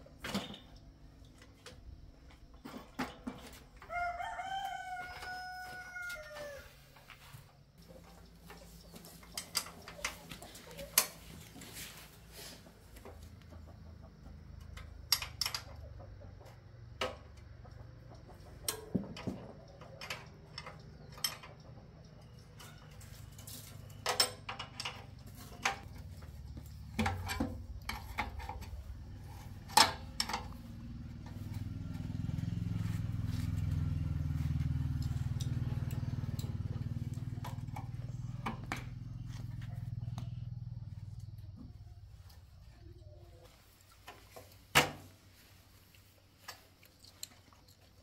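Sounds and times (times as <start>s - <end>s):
low engine hum: 25.0s - 43.3s.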